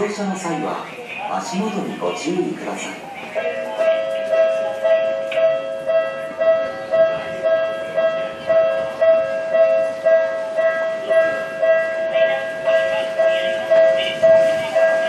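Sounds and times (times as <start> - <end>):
electric train approaching: 0.0 - 15.0
level crossing bell ringing: 3.4 - 15.0.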